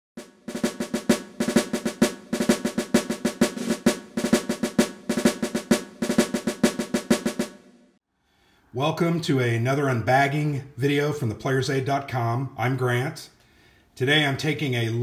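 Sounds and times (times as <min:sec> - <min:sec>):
fast drum strikes: 0:00.2 - 0:07.7.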